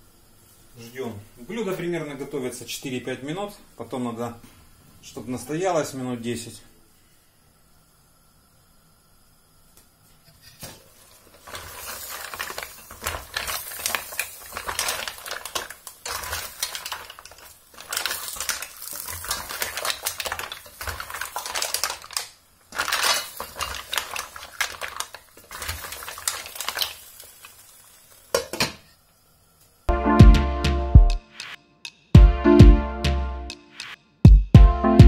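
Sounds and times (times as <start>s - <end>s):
mussel shells clattering in pan: 11.0s - 28.7s.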